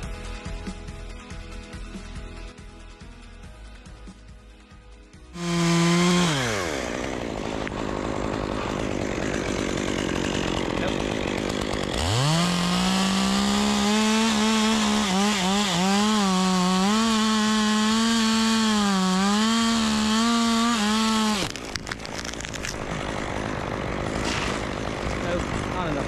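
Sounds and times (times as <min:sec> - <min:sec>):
chainsaw cutting wood: 0:05.3 - 0:26.0
clicks and rustles: 0:21.5 - 0:22.8.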